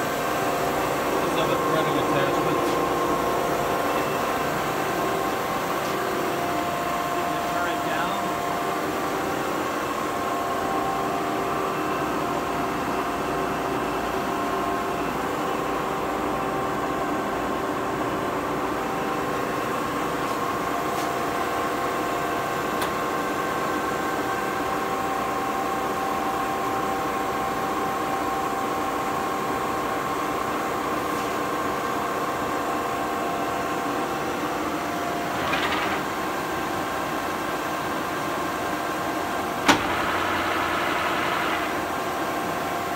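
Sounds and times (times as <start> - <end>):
lathe humming with drive whine: 0.0 - 42.9
short loud mechanical noise: 39.6 - 42.0.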